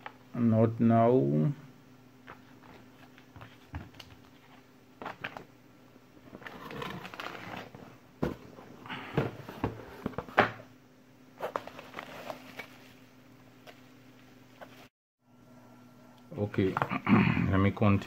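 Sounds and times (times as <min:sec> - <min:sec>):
paper rustling: 0:11.4 - 0:13.0.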